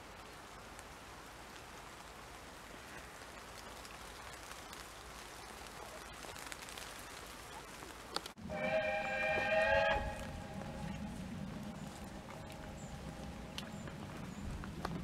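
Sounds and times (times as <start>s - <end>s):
water drips: 0.0s - 8.4s, 9.2s - 15.0s
light rain on leaves: 0.0s - 15.0s.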